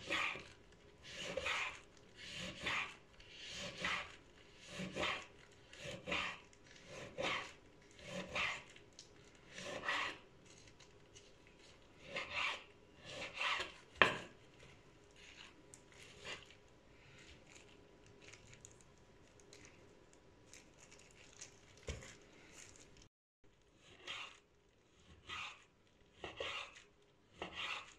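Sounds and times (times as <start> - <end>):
knife slicing meat: 0.0 - 8.7, 9.5 - 10.2, 12.0 - 14.3, 23.9 - 24.4, 25.0 - 27.9.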